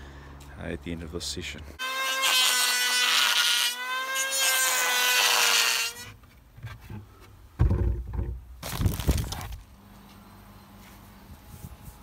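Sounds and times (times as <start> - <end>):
power tool cutting wood: 1.8 - 6.1
loud knocks and handling thumps: 6.5 - 9.6.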